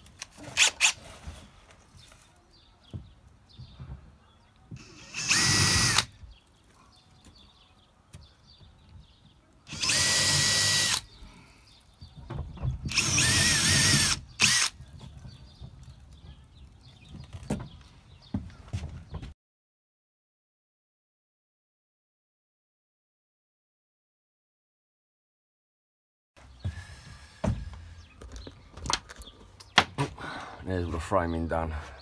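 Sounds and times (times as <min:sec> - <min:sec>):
cordless drill whine: 0:04.8 - 0:06.1, 0:09.7 - 0:11.1, 0:12.9 - 0:14.8.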